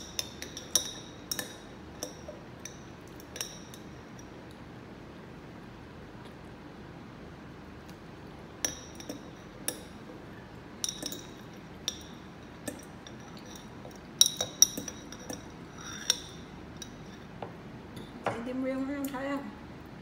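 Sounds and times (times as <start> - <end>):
metal fork clinking on glass jar: 0.0 - 4.3, 10.8 - 17.2.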